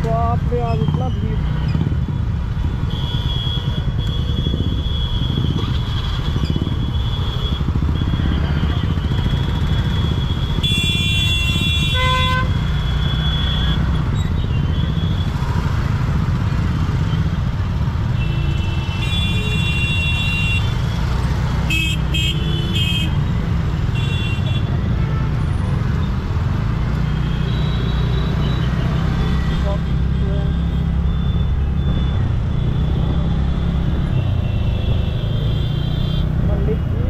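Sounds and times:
traffic engine rumble: 0.0 - 37.0
vehicle horns honking: 9.2 - 13.9, 21.7 - 23.2, 23.9 - 25.7, 34.1 - 36.5.

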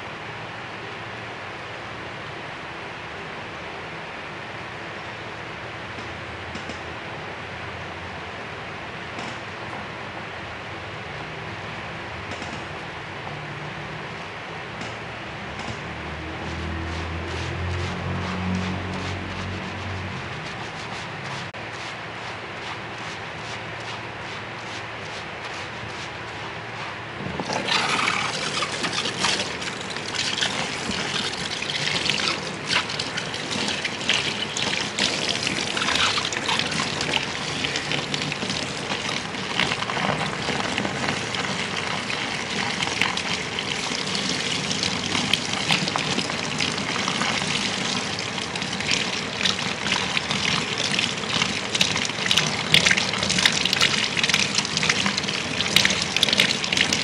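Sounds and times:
shower sprayer water splashing: 15.7 - 57.0.

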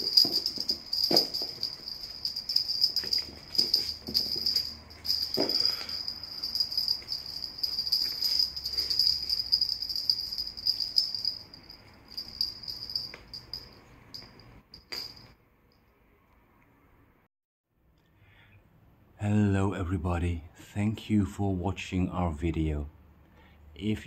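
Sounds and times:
small bells jingling: 0.0 - 15.4.

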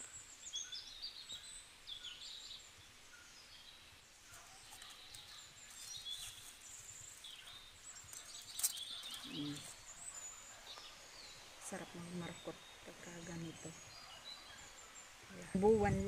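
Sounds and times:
faint bird chirping: 0.0 - 16.0
light rustle: 4.3 - 11.5.

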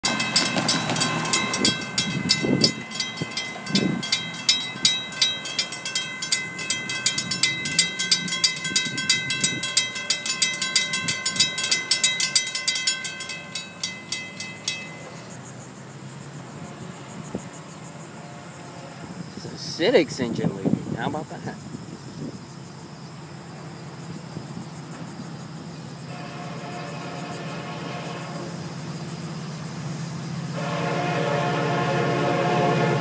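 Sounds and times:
railroad crossing bell ringing: 0.0 - 15.6.

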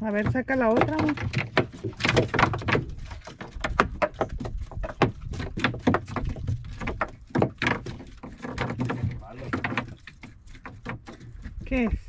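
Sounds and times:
taps and knocks in boat: 0.0 - 11.9.

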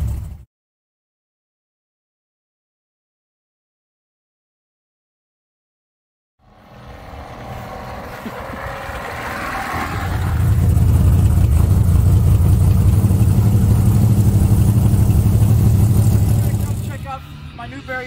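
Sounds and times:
van engine low rumble: 0.0 - 0.4, 6.4 - 18.0.

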